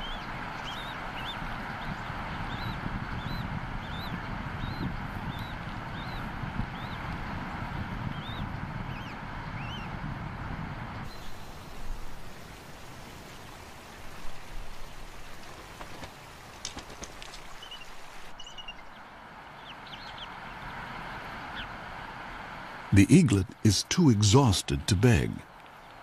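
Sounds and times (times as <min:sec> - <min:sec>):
steady rushing outdoor noise: 0:00.0 - 0:26.0
bird chirps: 0:17.6 - 0:18.9.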